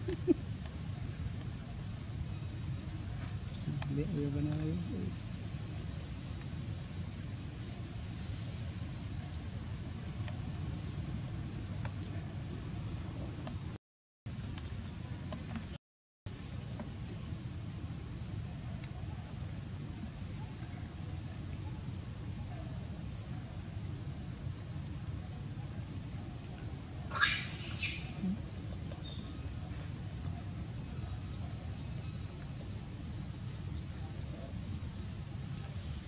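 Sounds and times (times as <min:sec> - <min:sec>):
insects droning: 0:00.0 - 0:36.0.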